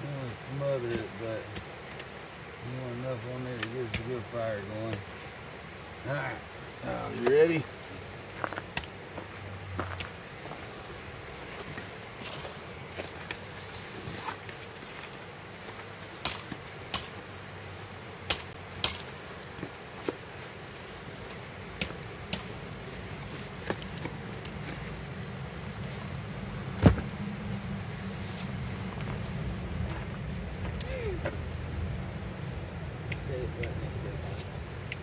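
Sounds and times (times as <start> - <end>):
loud thump: 26.8 - 27.1.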